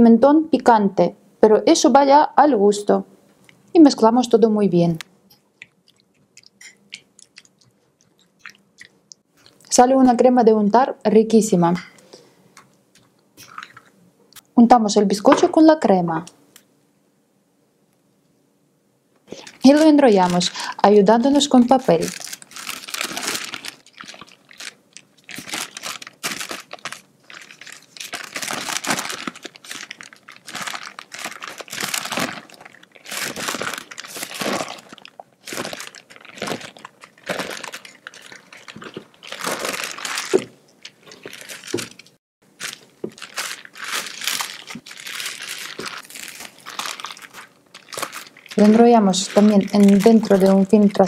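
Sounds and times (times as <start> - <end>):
baking paper crinkling: 19.3 - 51.0.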